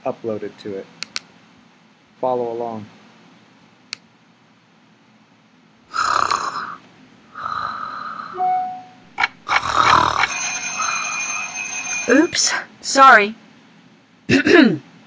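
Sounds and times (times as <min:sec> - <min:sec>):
click: 0:01.0 - 0:01.3
recorded snoring: 0:05.9 - 0:06.8, 0:07.4 - 0:08.4, 0:09.2 - 0:11.4
alarm ringing: 0:08.4 - 0:12.6.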